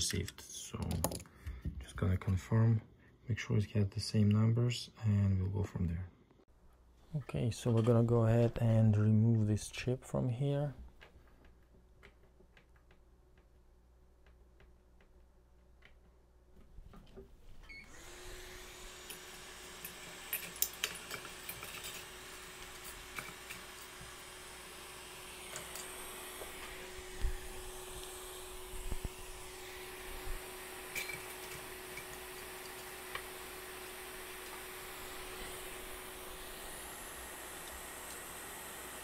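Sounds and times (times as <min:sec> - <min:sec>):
hot air station blowing: 0:17.8 - 0:39.0.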